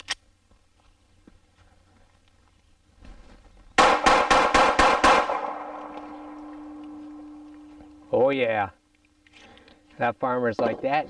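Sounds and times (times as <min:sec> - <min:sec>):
pistol shots: 0:03.8 - 0:07.4.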